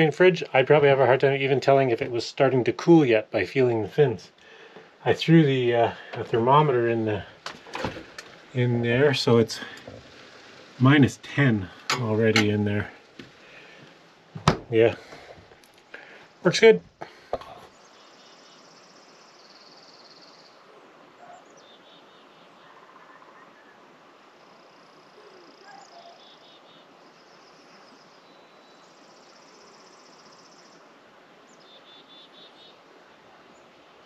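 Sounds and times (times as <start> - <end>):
steady hiss: 0.0 - 22.9, 23.5 - 34.0.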